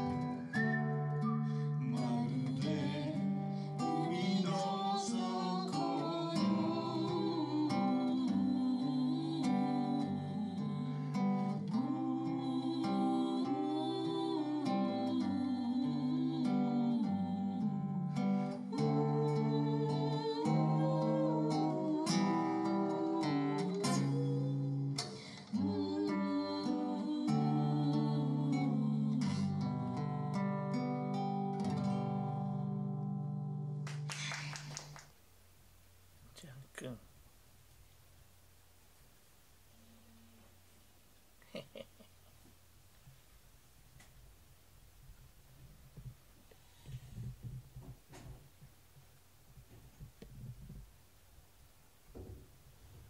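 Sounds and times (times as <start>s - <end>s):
person singing: 0.0s - 30.6s
acoustic guitar strumming: 0.0s - 33.8s.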